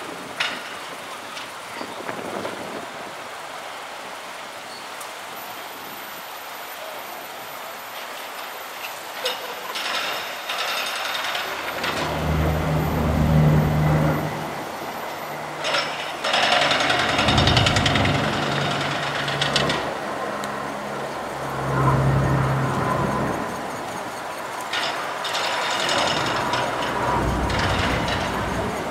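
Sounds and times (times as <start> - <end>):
turboprop aircraft drone: 16.9 - 28.9.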